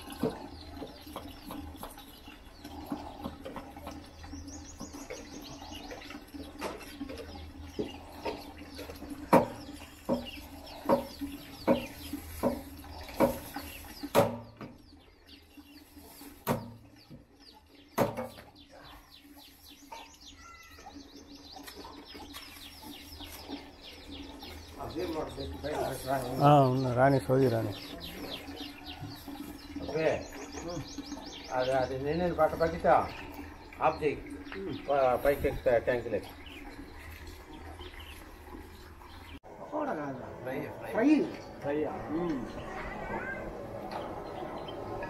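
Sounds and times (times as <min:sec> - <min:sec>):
birds chirping: 0:00.0 - 0:45.0.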